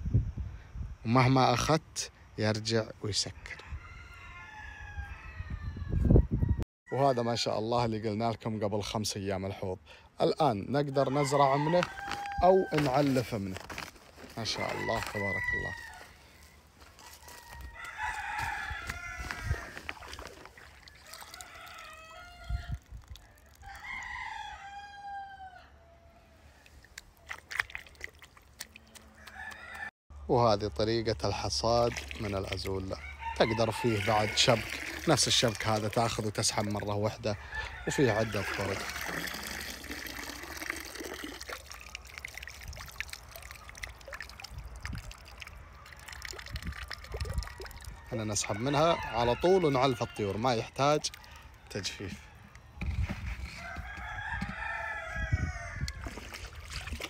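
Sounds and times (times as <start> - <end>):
rooster crowing: 3.5 - 7.4, 10.9 - 13.2, 14.5 - 26.7, 29.1 - 29.9, 32.9 - 35.2, 37.1 - 39.9, 46.9 - 56.3
drops pattering on water: 16.9 - 22.2, 26.6 - 29.9, 31.7 - 32.9, 38.3 - 47.9, 55.9 - 57.0
water dripping and trickling: 18.9 - 24.2, 26.6 - 29.6, 31.5 - 33.0, 33.8 - 36.9, 38.0 - 48.5, 50.7 - 51.8, 55.9 - 57.0.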